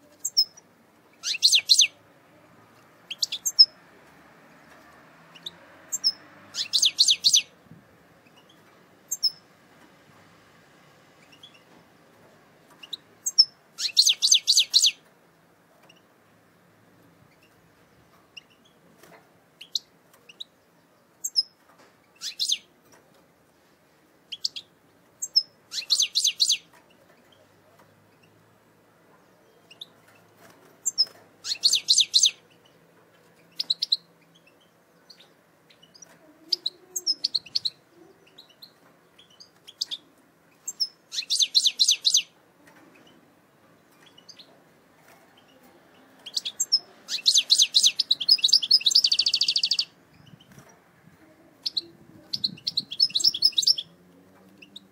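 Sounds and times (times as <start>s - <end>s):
goldfinch singing: 0.2s - 2.0s, 3.1s - 3.8s, 5.3s - 7.6s, 12.8s - 15.0s, 22.2s - 22.7s, 24.3s - 26.7s, 30.8s - 32.8s, 33.4s - 43.2s, 45.4s - 50.6s, 51.6s - 54.0s.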